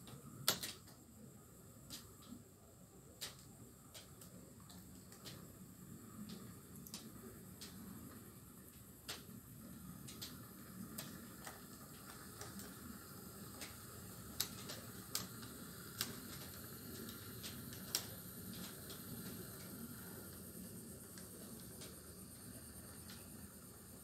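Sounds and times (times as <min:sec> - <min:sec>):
wheels clicking on rails: 0:03.2 - 0:24.0
model train rumbling: 0:05.8 - 0:24.0.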